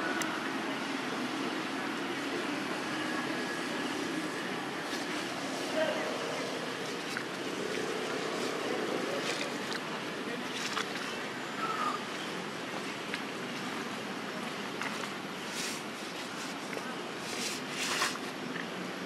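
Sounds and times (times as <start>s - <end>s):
steady outdoor hiss: 0.0s - 19.0s
leaf rustling and crackling: 4.4s - 12.9s, 13.6s - 18.6s.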